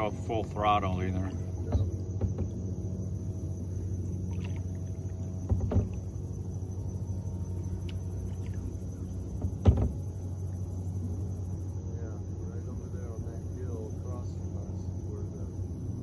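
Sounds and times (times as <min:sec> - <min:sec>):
paddle strokes in water: 0:00.0 - 0:11.3
steady low hum: 0:00.0 - 0:16.0.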